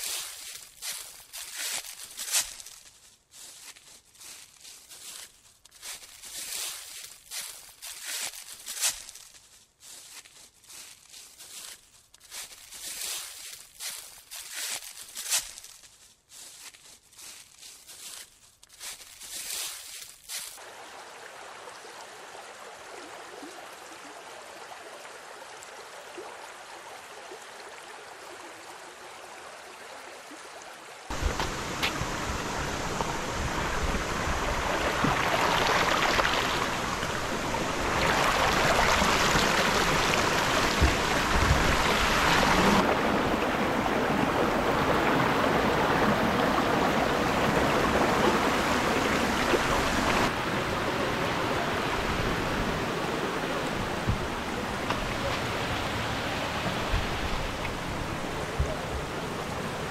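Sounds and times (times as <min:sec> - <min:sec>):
stream running over rocks: 0:00.0 - 0:02.8, 0:18.9 - 0:59.9.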